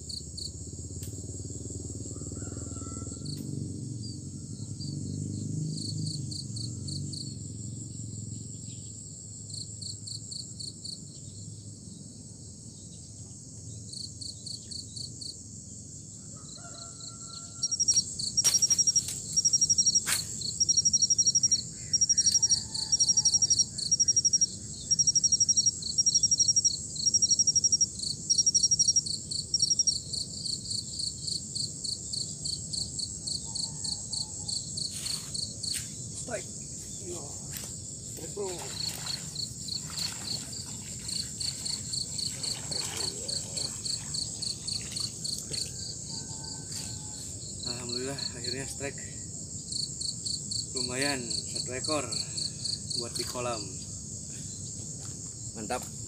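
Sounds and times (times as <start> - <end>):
insects chirping in pulse trains: 0.0 - 56.0
loud nearby insect chirping: 0.0 - 56.0.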